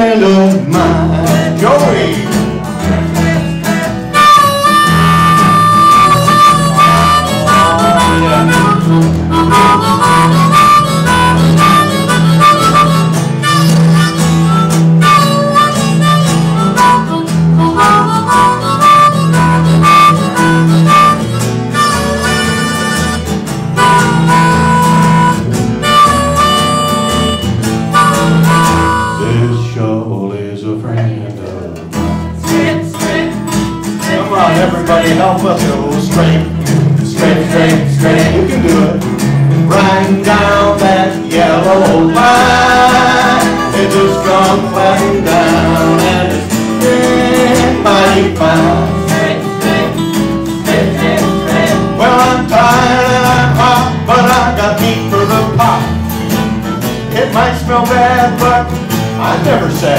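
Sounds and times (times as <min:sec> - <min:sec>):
acoustic guitar: 0:00.0 - 0:59.9
upright bass: 0:00.0 - 0:59.9
blues harmonica solo: 0:03.7 - 0:29.5, 0:39.7 - 0:56.8.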